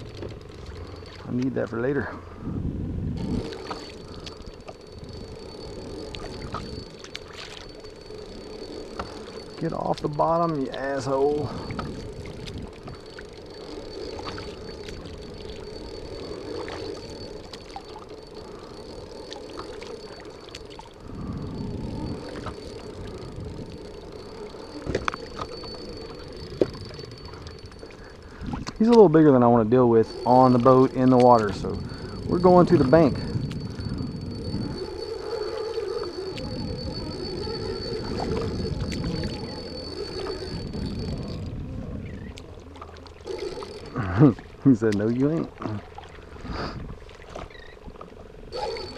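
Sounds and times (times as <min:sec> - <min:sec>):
paddle dipping and water dripping: 0:00.0 - 0:01.7, 0:03.2 - 0:41.4, 0:42.1 - 0:48.9
wind rumble on microphone: 0:00.0 - 0:18.5, 0:20.0 - 0:48.9
faint high whine: 0:00.0 - 0:48.9
paddle strokes splashing: 0:05.8 - 0:21.0.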